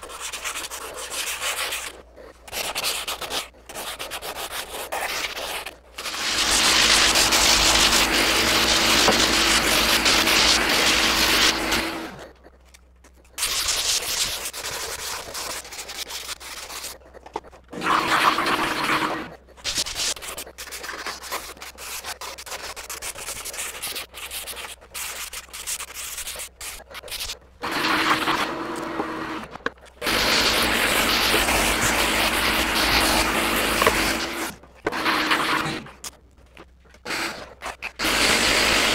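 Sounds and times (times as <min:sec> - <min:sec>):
hand sanding rubbing: 0:00.0 - 0:12.5, 0:13.2 - 0:29.4, 0:30.0 - 0:36.1
orbital sander running: 0:06.0 - 0:12.2, 0:30.0 - 0:35.8, 0:38.0 - 0:38.9.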